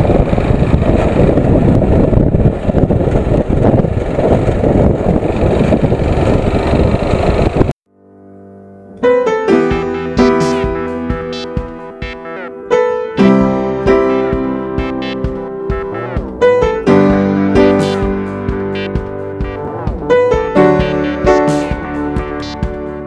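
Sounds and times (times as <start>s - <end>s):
motorcycle riding: 0.0s - 7.7s, 13.2s - 23.0s
wind: 0.0s - 7.7s
piano melody: 7.9s - 23.0s.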